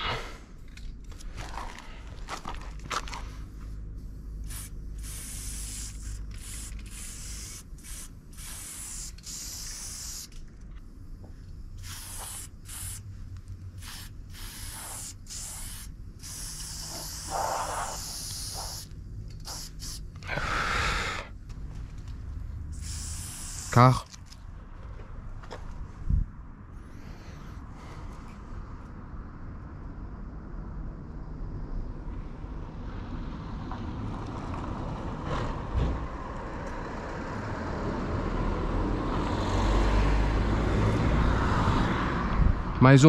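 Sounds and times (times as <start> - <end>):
spray paint can hissing: 4.4 - 10.6, 11.8 - 13.1, 13.7 - 20.3, 22.7 - 24.1.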